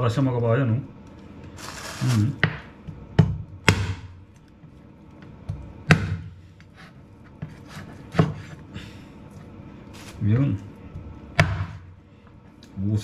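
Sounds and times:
cleaver chopping bony meat: 0:02.4 - 0:04.2, 0:05.8 - 0:06.4, 0:11.3 - 0:11.9.

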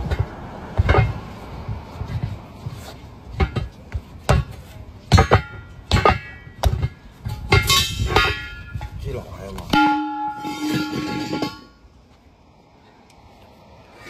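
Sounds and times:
metal wheel rim clanking: 0:00.0 - 0:12.0
ringing metal clang: 0:05.1 - 0:09.0, 0:09.7 - 0:11.9.

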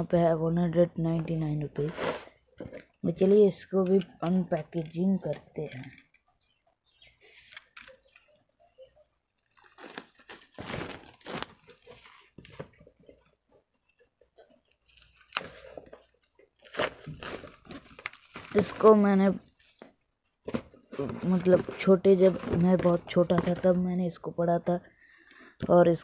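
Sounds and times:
packaging tearing and crinkling: 0:09.4 - 0:12.8, 0:14.8 - 0:20.0.

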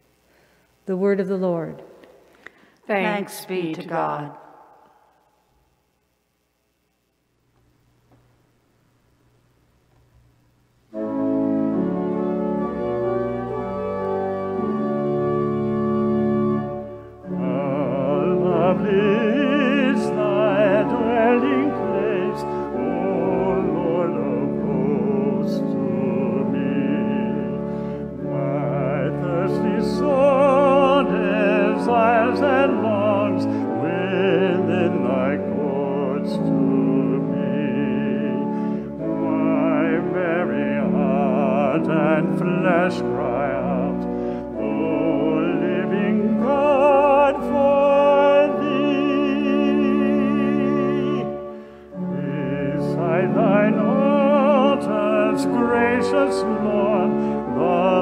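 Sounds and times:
person singing with vibrato: 0:02.6 - 0:05.3, 0:17.1 - 0:58.0
keyboard chords: 0:10.9 - 0:58.0.

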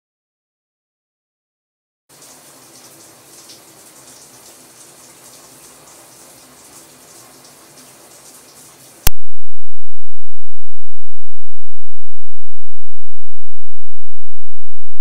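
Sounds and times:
shower water spraying: 0:02.1 - 0:09.1.

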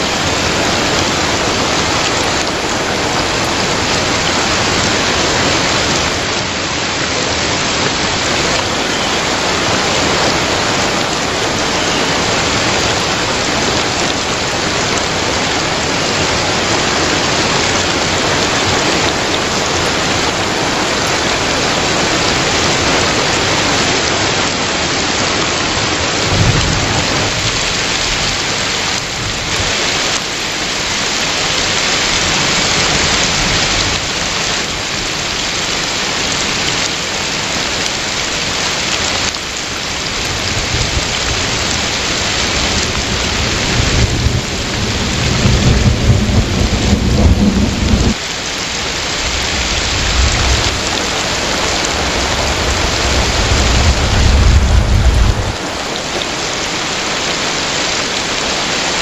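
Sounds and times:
heavy rain splashing: 0:00.0 - 0:59.0
thunder rumbling: 0:25.9 - 0:30.2, 0:40.1 - 0:48.2, 0:49.2 - 0:56.0.

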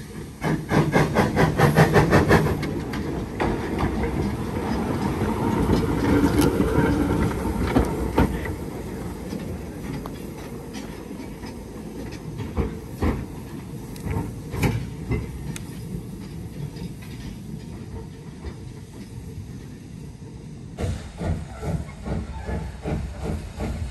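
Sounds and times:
steam locomotive exhaust beats: 0:00.0 - 0:23.9
train wheel clatter: 0:00.0 - 0:23.9.

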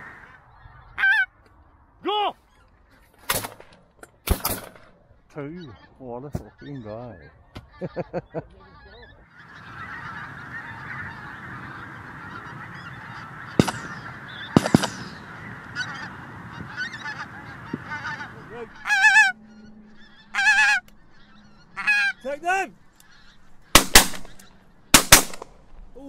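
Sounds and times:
geese calling: 0:00.0 - 0:03.2, 0:04.9 - 0:25.4
shotgun shots: 0:04.3 - 0:04.9, 0:13.6 - 0:15.3, 0:23.8 - 0:25.7
loud close goose honks: 0:05.6 - 0:25.4.

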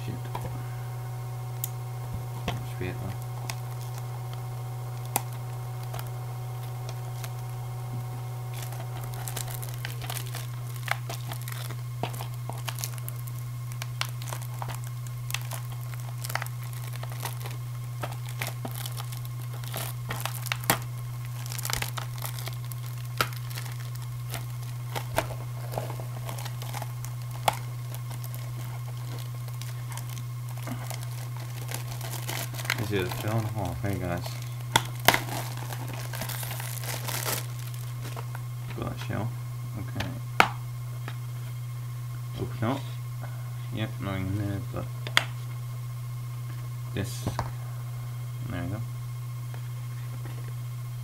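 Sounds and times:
steady low hum: 0:00.0 - 0:51.0
plastic wrapping crinkling and tearing: 0:01.5 - 0:38.9.

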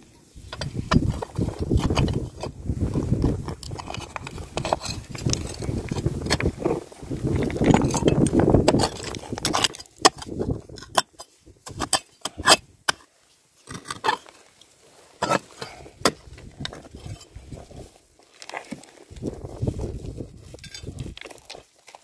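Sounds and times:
scraping loose soil: 0:00.0 - 0:22.0
digging tool knocking stones: 0:00.4 - 0:14.3, 0:15.2 - 0:17.4.

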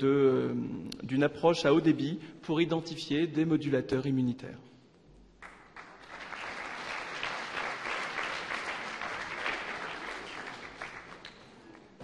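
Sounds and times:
audience applauding: 0:05.4 - 0:11.9.

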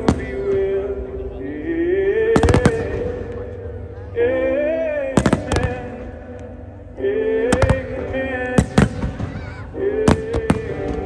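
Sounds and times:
fireworks bangs: 0:00.0 - 0:00.9, 0:02.2 - 0:03.8, 0:05.0 - 0:06.2, 0:07.5 - 0:11.0.

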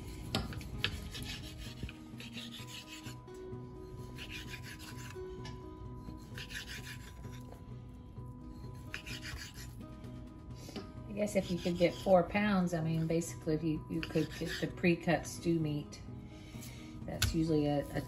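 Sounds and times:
knife scraping on wooden board: 0:00.0 - 0:03.2, 0:04.0 - 0:07.6, 0:08.5 - 0:09.8, 0:11.3 - 0:12.2, 0:14.0 - 0:14.8
knife sawing through meat: 0:00.0 - 0:03.3, 0:04.0 - 0:05.3, 0:06.1 - 0:07.6, 0:08.6 - 0:09.8, 0:11.3 - 0:12.2, 0:14.0 - 0:14.8.

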